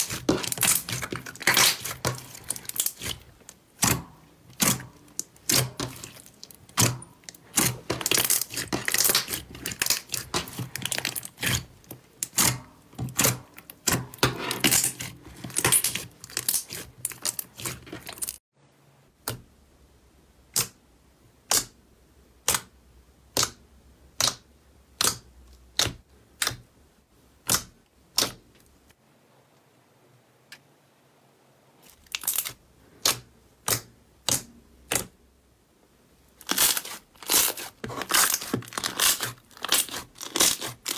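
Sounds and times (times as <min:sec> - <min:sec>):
slime crackling and popping: 0:00.0 - 0:18.4, 0:36.4 - 0:40.9.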